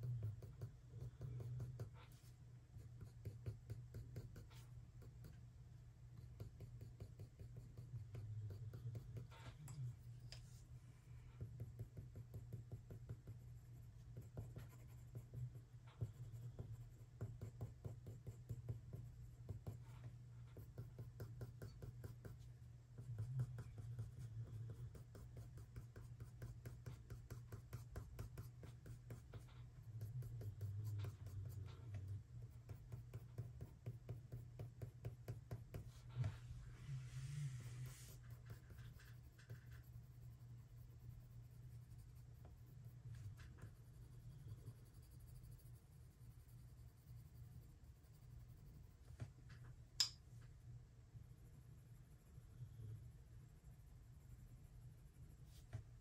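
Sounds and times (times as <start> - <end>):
colored pencil stroking on paper: 6.3 - 49.1
harsh pencil scrape: 35.7 - 40.0.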